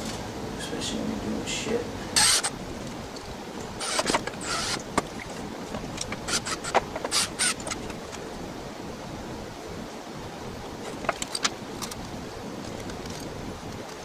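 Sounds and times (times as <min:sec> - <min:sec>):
cordless drill on wooden board: 0:02.2 - 0:02.5, 0:03.7 - 0:04.8, 0:06.2 - 0:07.8.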